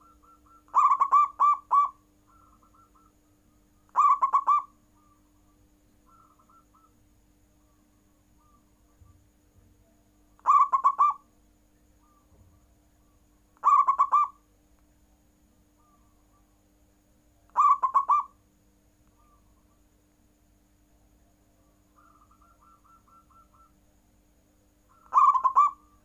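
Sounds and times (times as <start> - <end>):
dove cooing: 0.0 - 3.2, 3.9 - 5.2, 6.1 - 7.0, 7.6 - 9.1, 10.4 - 11.2, 13.6 - 14.4, 17.5 - 18.4, 19.2 - 19.8, 21.6 - 23.8, 24.9 - 26.0.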